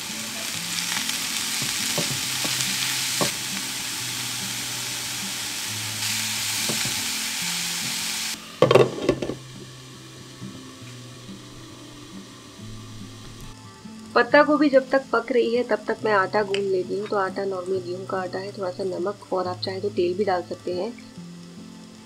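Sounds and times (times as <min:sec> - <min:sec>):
cabbage sizzling in a pan: 0:00.0 - 0:22.0
glass lid clattering onto pan: 0:08.6 - 0:09.4.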